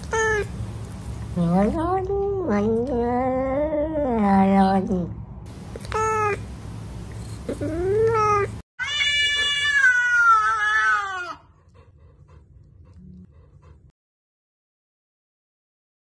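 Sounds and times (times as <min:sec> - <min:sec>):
cat meowing: 0:07.5 - 0:11.4.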